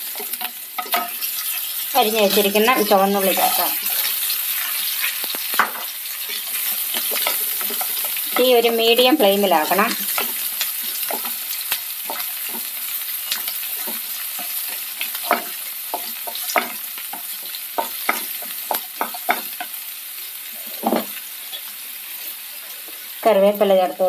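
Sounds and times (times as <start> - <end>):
shallots sizzling in oil: 0.0 - 24.0.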